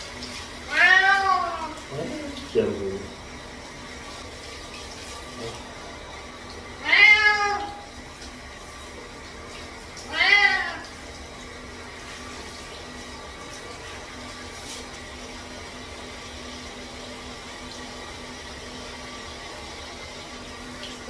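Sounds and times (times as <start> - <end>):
shower head running water: 0.0 - 21.0
cat meowing loudly: 0.7 - 1.8, 6.8 - 7.9, 10.1 - 10.9.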